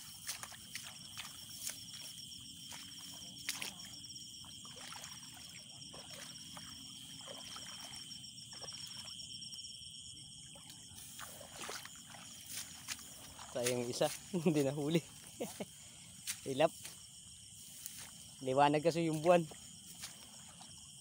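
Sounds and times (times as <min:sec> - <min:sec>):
rustles and steps in dry grass: 0:00.0 - 0:03.8, 0:10.9 - 0:20.7
night insects chirping: 0:00.0 - 0:21.0.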